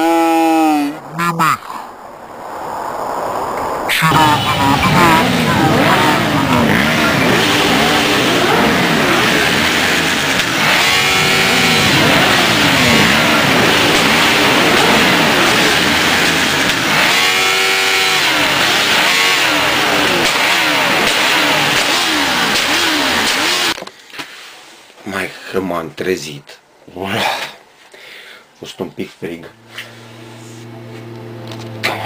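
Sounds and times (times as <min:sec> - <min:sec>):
motorcycle engines revving: 0:04.0 - 0:23.8, 0:29.5 - 0:32.0.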